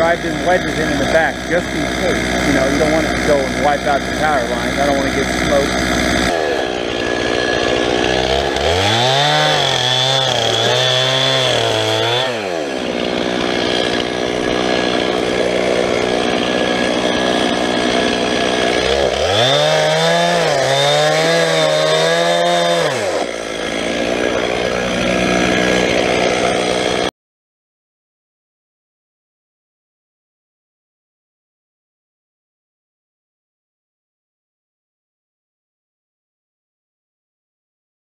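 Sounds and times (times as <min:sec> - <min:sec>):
chainsaw idling and revving: 0:00.0 - 0:27.1.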